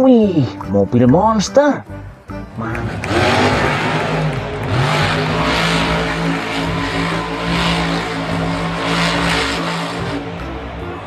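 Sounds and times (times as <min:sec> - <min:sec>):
truck engine revving hard: 0:02.4 - 0:11.0.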